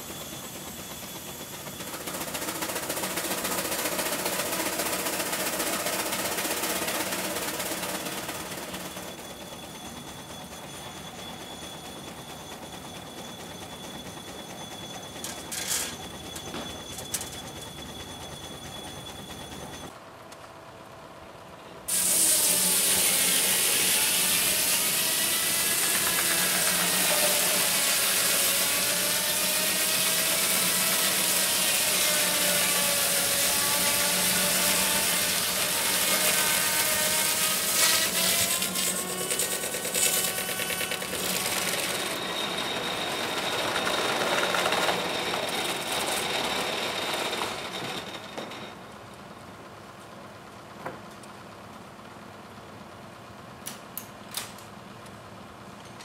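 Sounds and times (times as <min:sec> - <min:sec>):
circular saw cutting log: 0:00.0 - 0:09.3, 0:21.9 - 0:48.2.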